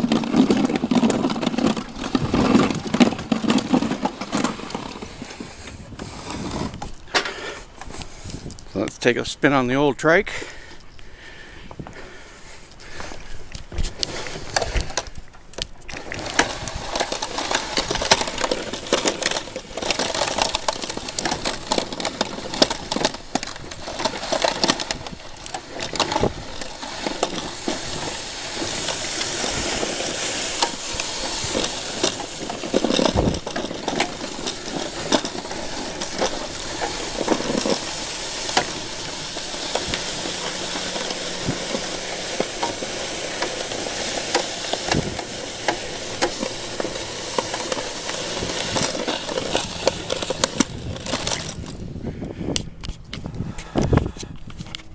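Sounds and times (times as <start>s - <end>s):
snow crunching against plow blade: 0.0s - 54.9s.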